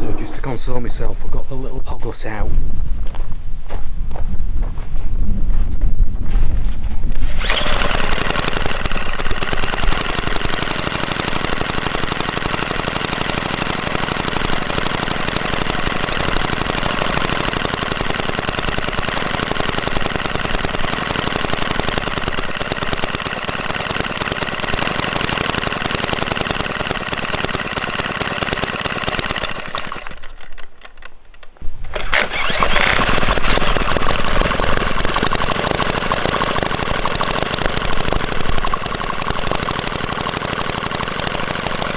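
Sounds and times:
model engine running: 7.2s - 30.7s, 31.9s - 41.9s.

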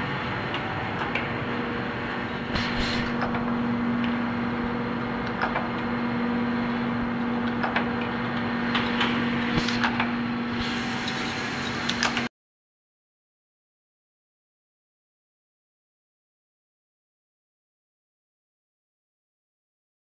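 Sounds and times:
conveyor unit humming: 0.0s - 12.3s.

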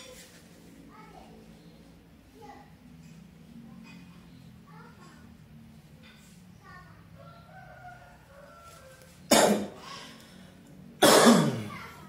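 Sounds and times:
sharp cough: 9.3s - 9.9s, 11.0s - 11.8s.

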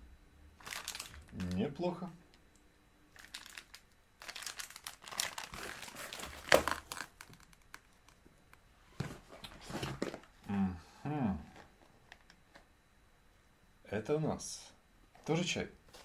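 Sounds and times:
packaging crinkling and rustling: 0.6s - 1.7s, 3.1s - 8.2s.

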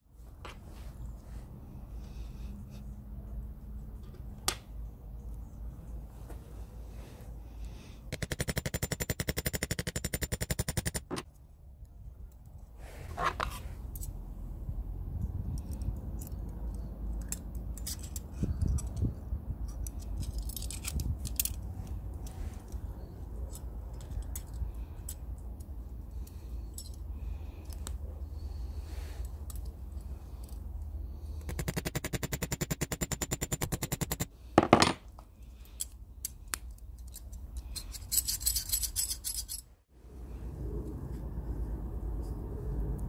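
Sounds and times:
metal clicks and clinks: 15.5s - 22.8s, 23.4s - 28.0s, 35.6s - 39.7s.

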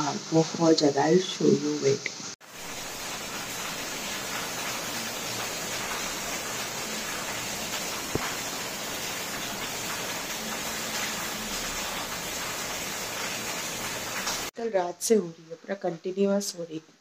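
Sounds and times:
very heavy rain: 0.0s - 14.5s.

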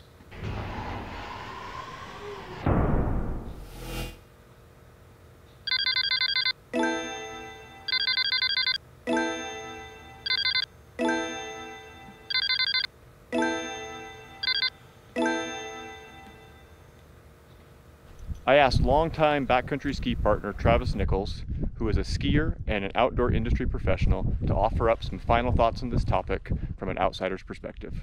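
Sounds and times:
trilling phone bell ring: 5.7s - 16.9s
struck chime tone: 6.8s - 17.0s.

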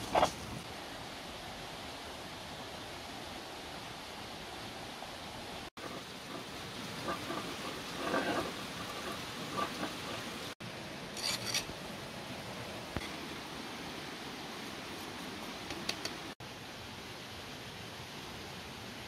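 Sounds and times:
outdoor hiss: 0.0s - 19.0s
stone scraping seeds on slab: 5.8s - 10.6s, 11.2s - 11.7s.

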